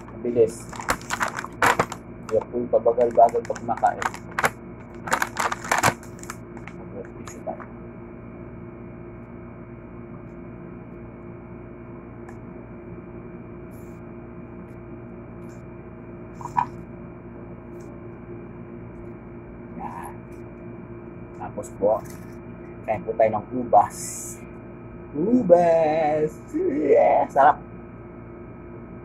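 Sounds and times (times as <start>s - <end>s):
electrical hum: 0.0s - 29.0s.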